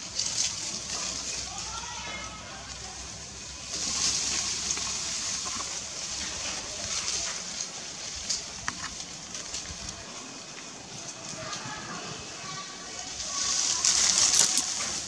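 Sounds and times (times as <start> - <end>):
high-pitched outdoor hiss: 0.0 - 15.0.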